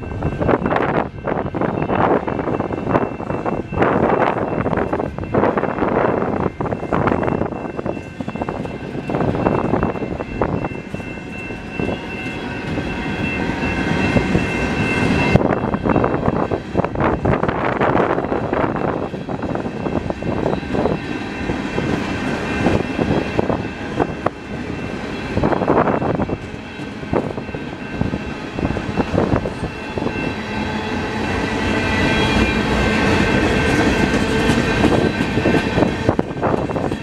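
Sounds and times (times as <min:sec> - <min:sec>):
steady high ringing: 0:00.0 - 0:37.0
train wheels clanking over rail joints: 0:32.5 - 0:37.0.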